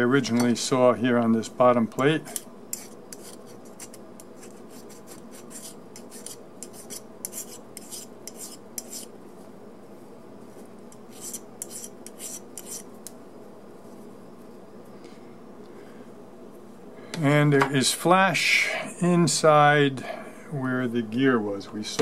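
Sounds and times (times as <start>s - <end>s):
hand file rasping on metal: 2.3s - 9.1s, 11.1s - 12.8s.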